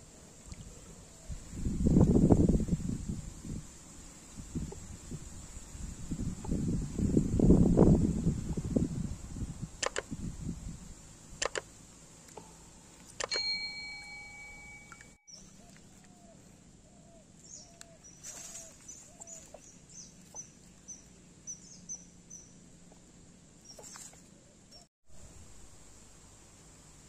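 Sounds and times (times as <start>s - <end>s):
sharp clicks: 9.8s - 10.1s, 11.4s - 11.7s, 13.1s - 13.4s
held chime: 13.3s - 15.3s
birds high chirps: 14.4s - 22.6s.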